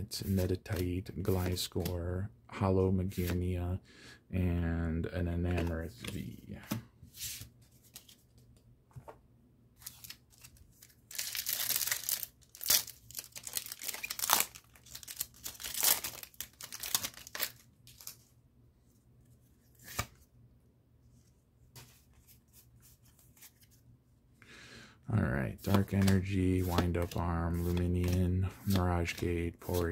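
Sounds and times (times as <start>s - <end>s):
foil wrapper tearing and crinkling: 11.1s - 18.2s.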